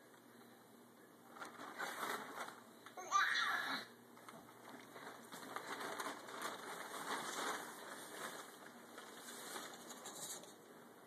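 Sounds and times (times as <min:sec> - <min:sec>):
nylon fabric rustling: 0:04.6 - 0:10.0.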